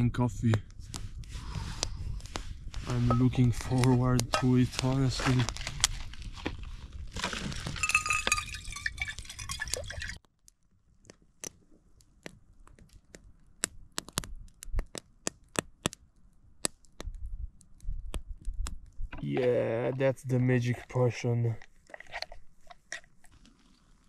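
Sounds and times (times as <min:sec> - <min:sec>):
campfire crackles: 0:00.0 - 0:24.0.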